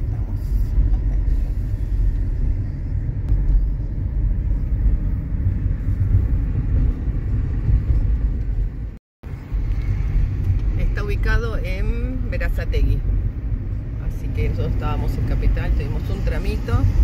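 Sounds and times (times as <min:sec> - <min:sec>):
car road noise inside cabin: 0:00.0 - 0:17.0.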